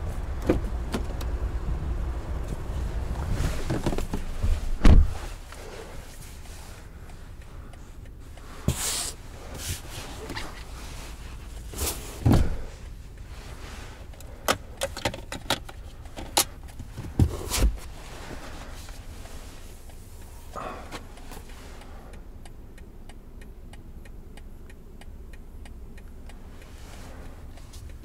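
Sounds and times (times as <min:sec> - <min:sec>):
heavy thumps in car seats: 0:03.1 - 0:05.6, 0:08.6 - 0:09.0, 0:11.7 - 0:12.8, 0:16.8 - 0:18.6.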